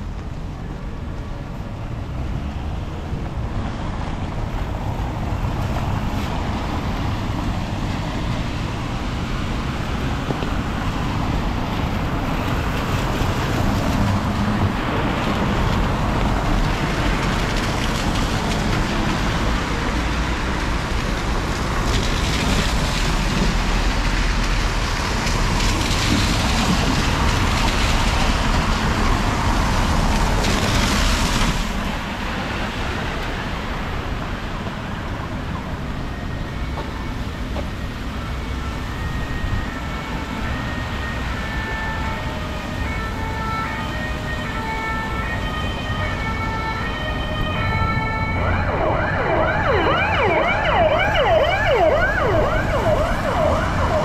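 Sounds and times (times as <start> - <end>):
wet traffic noise: 0.0 - 54.0.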